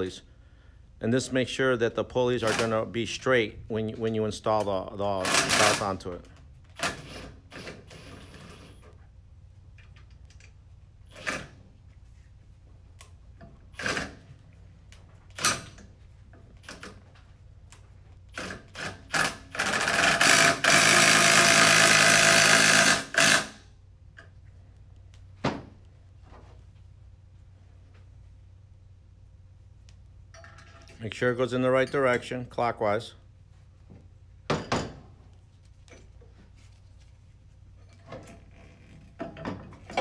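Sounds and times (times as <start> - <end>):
cordless power tool spinning: 18.4 - 23.6.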